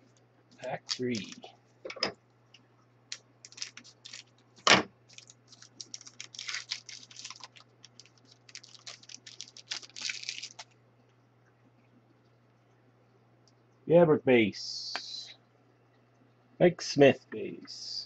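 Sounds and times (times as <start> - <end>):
wrapper crinkling: 0.7 - 1.5, 3.4 - 10.8
scissors snipping wrapper: 3.5 - 4.3, 5.1 - 10.7.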